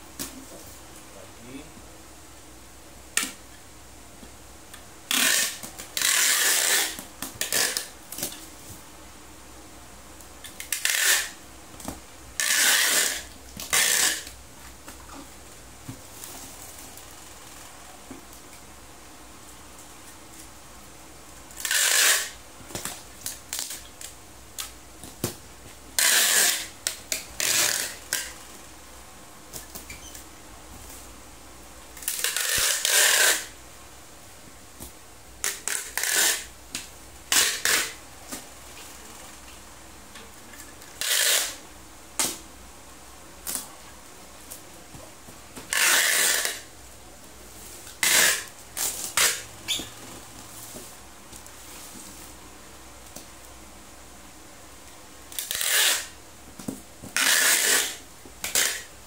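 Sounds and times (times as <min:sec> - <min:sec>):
packing tape ripping off dispenser: 0:05.1 - 0:08.4, 0:10.4 - 0:11.4, 0:12.4 - 0:14.4, 0:21.5 - 0:25.4, 0:26.0 - 0:28.4, 0:32.0 - 0:33.6, 0:35.4 - 0:36.5, 0:37.3 - 0:38.0, 0:40.8 - 0:41.6, 0:45.6 - 0:46.7, 0:47.9 - 0:49.9, 0:55.3 - 0:56.2, 0:57.1 - 0:58.9
tape dispenser clicks: 0:12.4 - 0:14.4, 0:26.0 - 0:28.4, 0:32.0 - 0:33.5, 0:37.3 - 0:38.0, 0:57.2 - 0:58.9.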